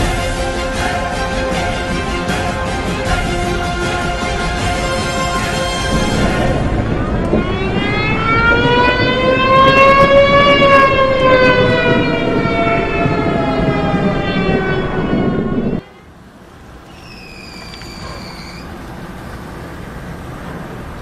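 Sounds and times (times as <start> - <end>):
steady rushing noise: 4.8 - 15.8
siren-like wail: 5.8 - 15.8.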